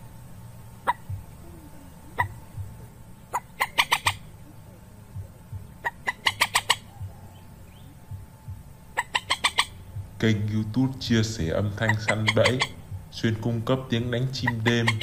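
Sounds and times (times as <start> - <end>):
low steady hum: 0.0 - 15.0
moorhen clucking calls: 0.8 - 8.0, 8.8 - 10.2, 11.1 - 13.1, 13.7 - 15.0.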